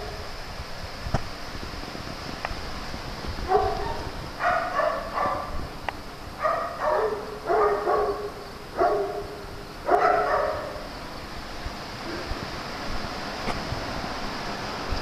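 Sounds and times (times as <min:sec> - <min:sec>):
dog barking: 0:03.5 - 0:05.6, 0:06.4 - 0:10.9.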